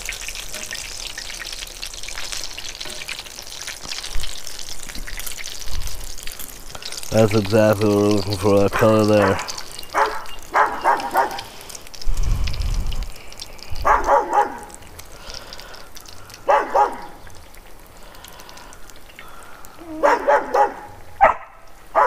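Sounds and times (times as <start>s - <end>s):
food deep-frying in oil: 0.0s - 22.0s
dog barking: 8.7s - 11.5s, 13.8s - 14.7s, 16.4s - 17.2s, 19.8s - 22.0s.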